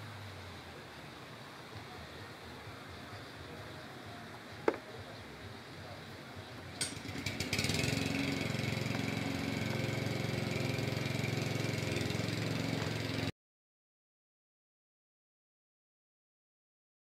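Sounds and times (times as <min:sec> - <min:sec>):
engine running: 0:00.0 - 0:13.3.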